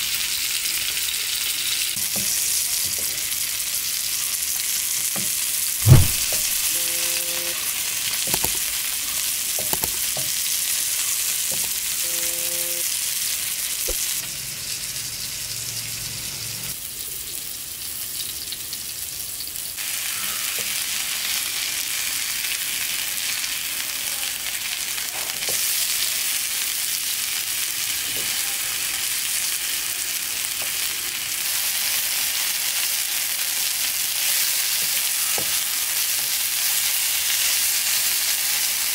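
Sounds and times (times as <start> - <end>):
fish sizzling in oil: 0.0 - 38.9
sharp thump: 5.8 - 6.6.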